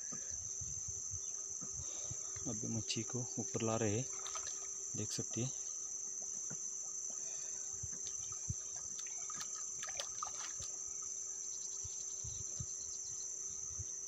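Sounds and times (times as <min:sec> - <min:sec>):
high-pitched insect drone: 0:00.0 - 0:14.0
fish splashing in shallow water: 0:04.0 - 0:04.9, 0:07.9 - 0:11.2.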